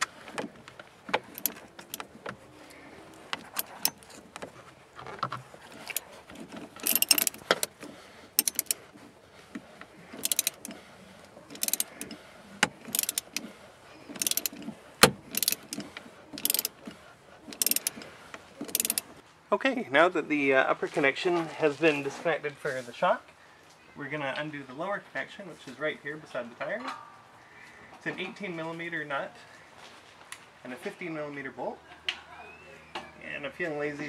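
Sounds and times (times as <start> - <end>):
hand ratchet clicking: 1.1 - 2.1, 3.4 - 4.2, 5.8 - 7.8, 8.4 - 8.8, 10.1 - 10.8, 11.5 - 13.5, 14.1 - 16.8, 17.5 - 18.0, 18.6 - 19.1.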